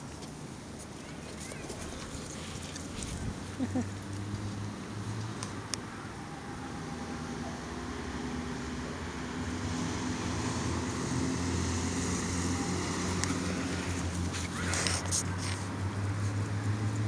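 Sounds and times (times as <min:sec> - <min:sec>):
vehicle engine humming: 0:00.0 - 0:17.0
brief rustle: 0:14.2 - 0:17.0.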